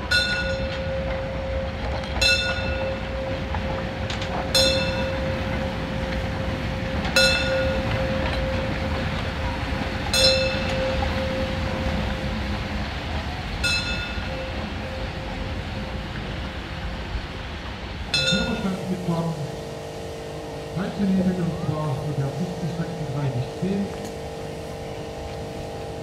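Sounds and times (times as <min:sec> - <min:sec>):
steam locomotive rumble and hiss: 0:00.0 - 0:26.0
high ringing metallic squeaks: 0:07.1 - 0:11.8.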